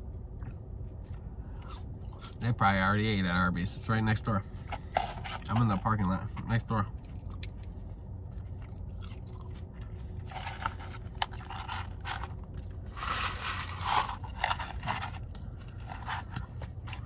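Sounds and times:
chewing and crunching: 0.0s - 3.2s, 4.4s - 17.0s
paper carton rustling: 10.3s - 17.0s.

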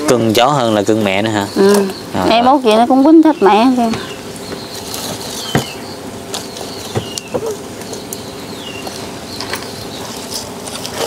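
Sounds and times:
bird chirping: 0.0s - 11.0s
sharp knocks: 3.8s - 5.8s, 6.9s - 7.6s.

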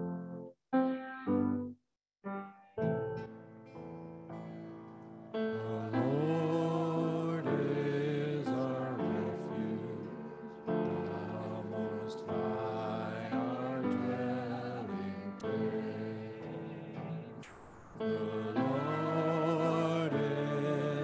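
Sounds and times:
keyboard accompaniment: 0.0s - 21.0s
person singing a slow psalm: 5.4s - 21.0s.

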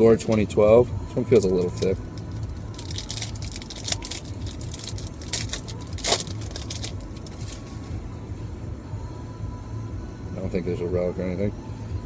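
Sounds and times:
low steady hum: 0.0s - 12.0s
wrapper tearing and crinkling: 2.4s - 7.8s.

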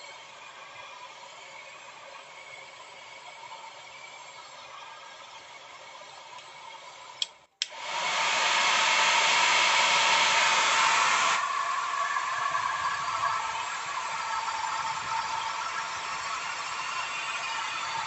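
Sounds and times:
hot-air dryer switch clicks: 7.2s - 7.8s
hot-air dryer blowing: 7.6s - 18.0s.

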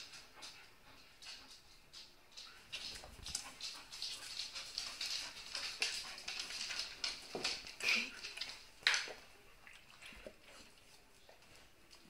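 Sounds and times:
dog claws clicking on wood floor: 1.2s - 9.2s.

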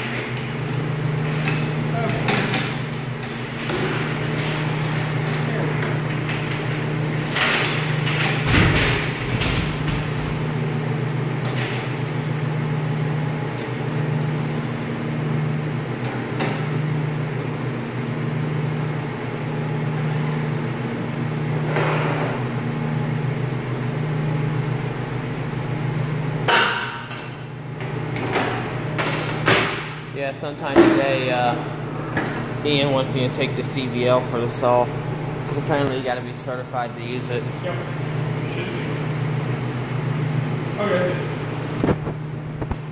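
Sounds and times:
steady machine hum: 0.0s - 42.9s
metal table sliding: 21.6s - 22.4s.

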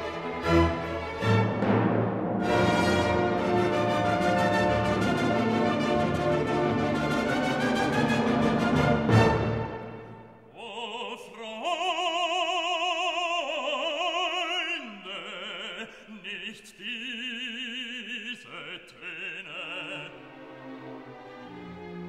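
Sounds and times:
classical accompaniment: 0.0s - 10.5s, 20.0s - 22.0s
operatic singing voice: 10.5s - 20.6s.

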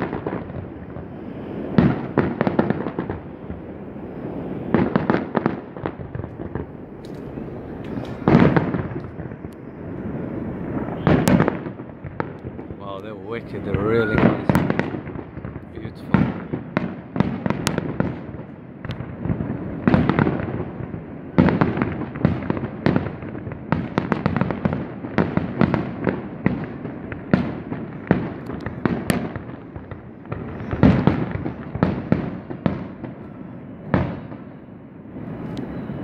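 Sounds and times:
fireworks bursting: 0.0s - 36.0s.

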